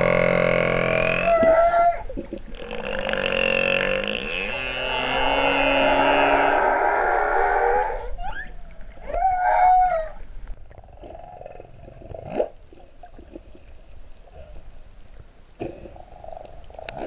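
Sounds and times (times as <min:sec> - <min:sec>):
humpback whale song underwater: 0:00.0 - 0:13.3.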